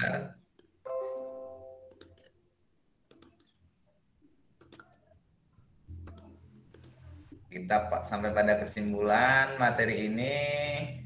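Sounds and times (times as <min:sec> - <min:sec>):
computer mouse clicking: 0:00.5 - 0:00.8, 0:01.9 - 0:02.4, 0:03.1 - 0:03.7, 0:04.6 - 0:05.2, 0:05.9 - 0:07.3.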